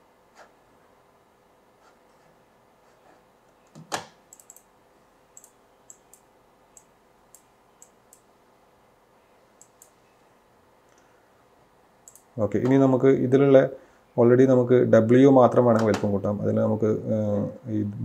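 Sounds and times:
computer mouse clicking: 3.7s - 4.7s, 5.4s - 8.3s, 9.6s - 10.0s, 12.0s - 12.3s.

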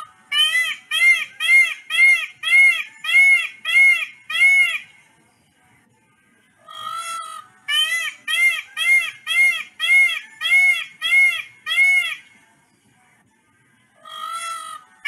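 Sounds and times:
peacock calling: 0.0s - 4.9s, 6.6s - 12.3s, 14.0s - 15.0s.

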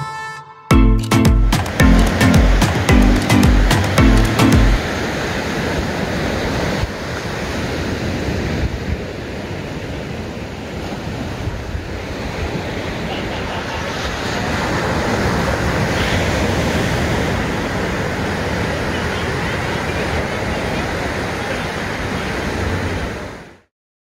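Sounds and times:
small waves breaking on beach: 4.8s - 23.7s.

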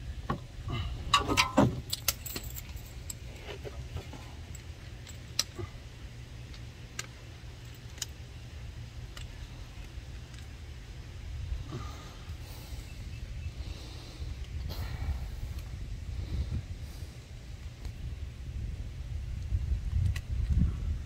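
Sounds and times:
metal tools clinking: 1.1s - 5.6s.

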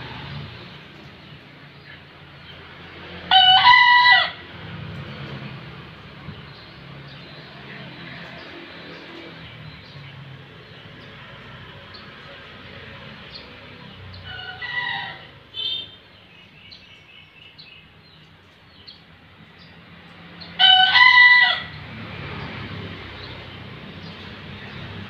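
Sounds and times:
rooster crowing: 3.3s - 4.4s, 14.2s - 15.4s, 20.6s - 21.8s.

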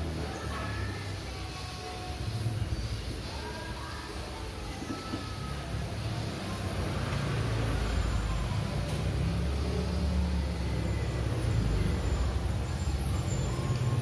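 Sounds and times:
vehicle engine running: 4.4s - 14.0s.

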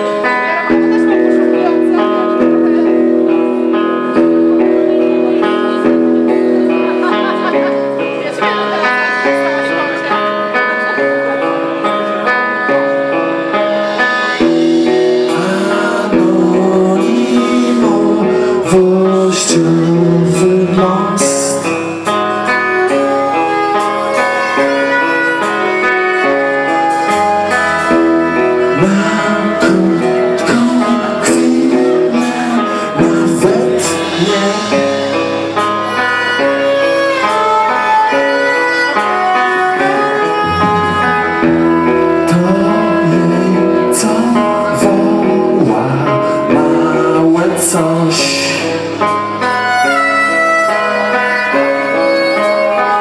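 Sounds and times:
bass notes: 0.0s - 53.0s
drums: 0.0s - 53.0s
electric guitar: 0.0s - 53.0s
bowed violin: 20.7s - 45.2s, 48.6s - 53.0s.

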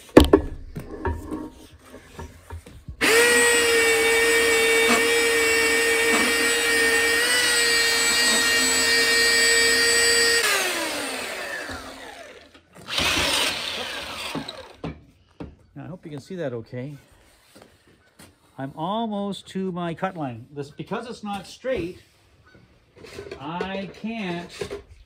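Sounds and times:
belt sander whining: 3.0s - 14.9s.

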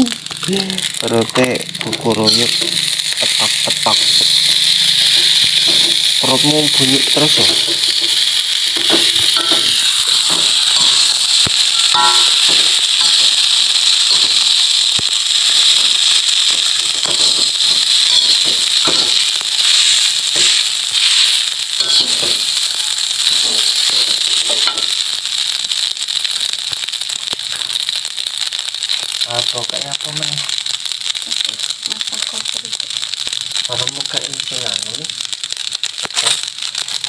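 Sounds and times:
rice sizzling in a wok: 0.0s - 37.0s
metal spatula scraping a pan: 21.8s - 22.5s.

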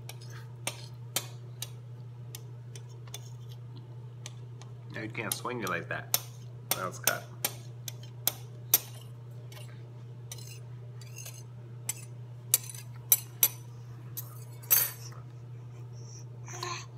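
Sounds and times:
cutlery clinking on stone countertop: 10.3s - 13.6s, 14.2s - 15.1s.

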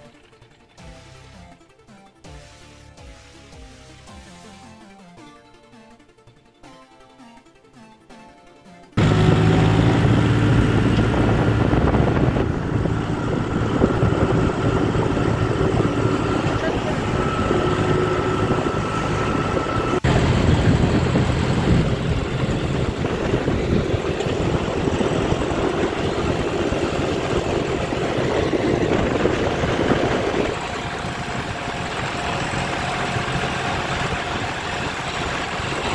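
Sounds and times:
road noise: 9.0s - 35.9s
tractor diesel engine running: 9.0s - 35.9s
wind: 9.0s - 35.9s.

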